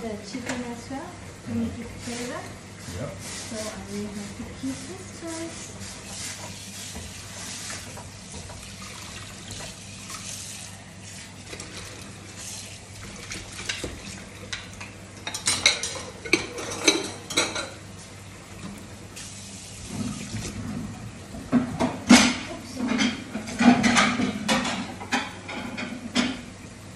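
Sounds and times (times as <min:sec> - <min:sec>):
tap running into a sink: 0:06.1 - 0:10.3, 0:13.0 - 0:14.2.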